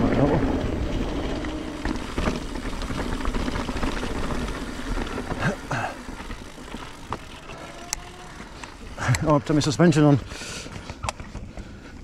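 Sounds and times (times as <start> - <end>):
bike tyre rumble: 0.0 - 12.0
bike frame rattle: 0.8 - 9.8.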